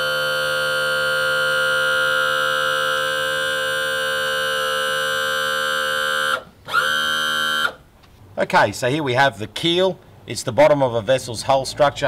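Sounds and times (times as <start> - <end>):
electric motor whining: 0.0 - 7.8.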